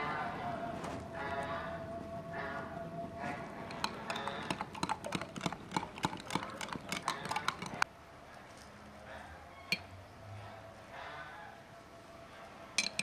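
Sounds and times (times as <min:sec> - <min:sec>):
metal spoon clinking in glass jar: 0:03.7 - 0:07.8, 0:12.8 - 0:13.0.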